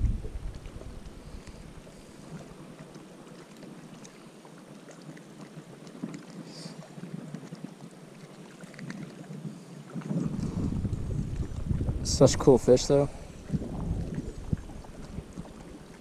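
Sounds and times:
light wind on microphone: 0:00.0 - 0:02.5, 0:09.9 - 0:16.0.

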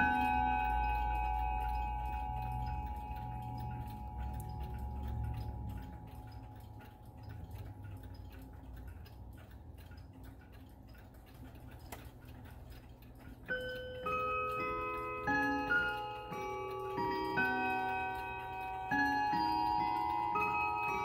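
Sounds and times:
clock chime tones: 0:00.0 - 0:07.7, 0:13.5 - 0:21.0
clock ticking: 0:00.0 - 0:21.0.

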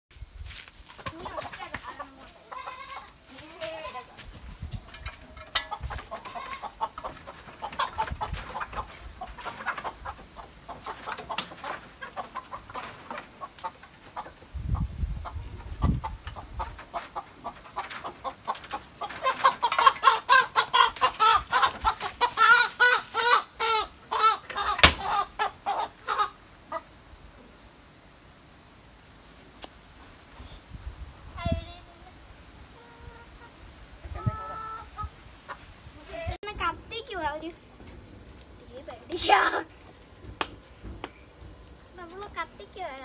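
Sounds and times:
chicken clucking: 0:01.1 - 0:03.2, 0:03.8 - 0:26.9, 0:32.8 - 0:35.7.

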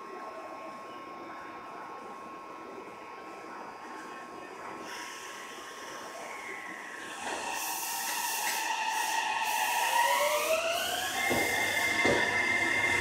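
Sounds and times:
train traction motors whining: 0:04.8 - 0:13.0
air hiss: 0:07.1 - 0:10.5.

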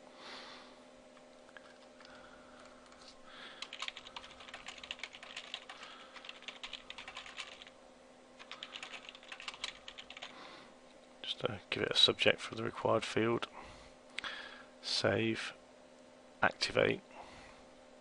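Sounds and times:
typing on computer keyboard: 0:03.6 - 0:07.7, 0:08.4 - 0:10.3.

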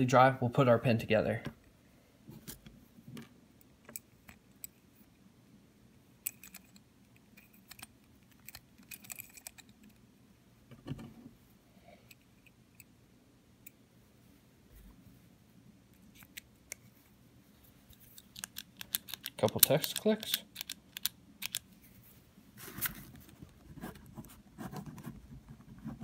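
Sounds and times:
metallic clicks and taps: 0:18.2 - 0:21.7.

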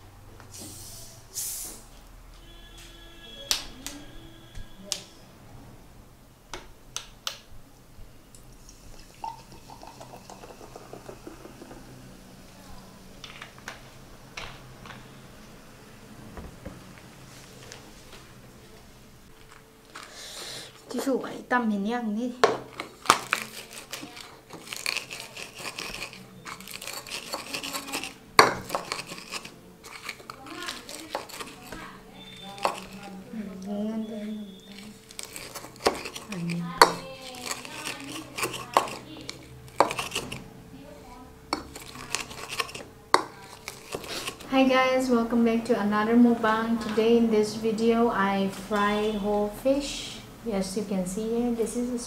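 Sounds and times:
pestle crushing in bowl: 0:09.2 - 0:12.2, 0:22.4 - 0:33.2, 0:34.7 - 0:40.5, 0:41.5 - 0:44.5.

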